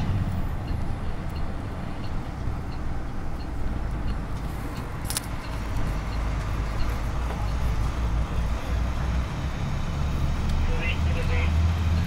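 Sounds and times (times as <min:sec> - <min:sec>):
bus diesel engine rumble: 0:00.0 - 0:12.0
road noise: 0:00.0 - 0:12.0.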